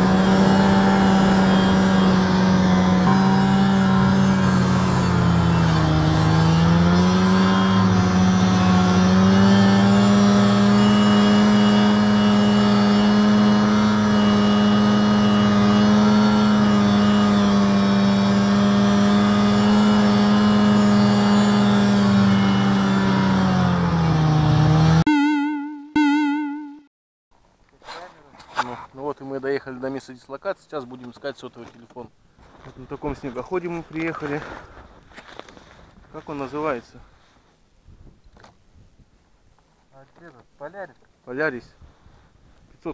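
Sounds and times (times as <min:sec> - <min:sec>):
snowmobile engine running: 0:00.0 - 0:25.0
short warbling tone: 0:25.1 - 0:26.9.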